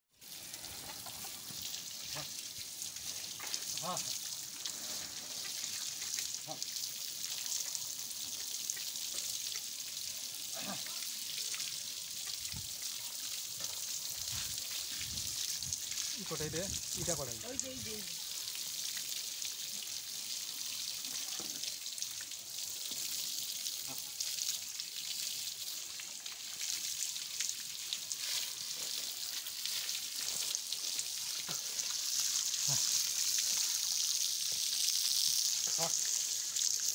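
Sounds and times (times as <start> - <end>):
hose water spraying: 0.1 - 36.9
water splashing and dripping on mud: 0.2 - 36.9
person speaking: 16.1 - 18.2
water splashing on mud: 24.0 - 36.9.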